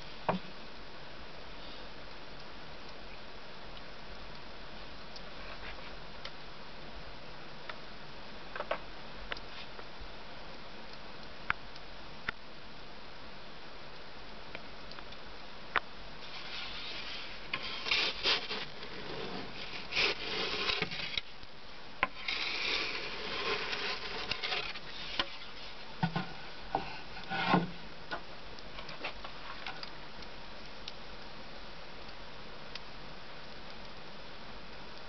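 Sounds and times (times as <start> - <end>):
wooden peel scraping brick floor: 16.2 - 21.3, 22.0 - 27.8.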